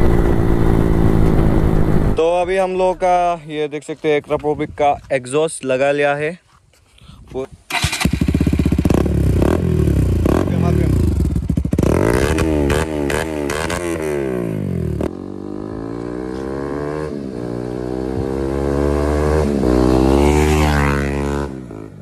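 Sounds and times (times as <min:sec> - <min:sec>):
motorcycle riding: 0:00.0 - 0:02.7, 0:07.7 - 0:22.0
motorcycle engine revving: 0:07.7 - 0:22.0.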